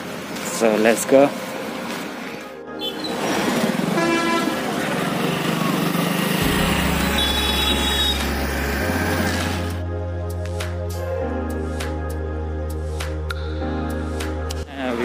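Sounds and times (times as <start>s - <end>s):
street traffic: 0.0s - 9.8s
vehicle horn honking: 3.9s - 4.8s, 6.4s - 8.7s
music with low sustained notes: 6.4s - 15.0s.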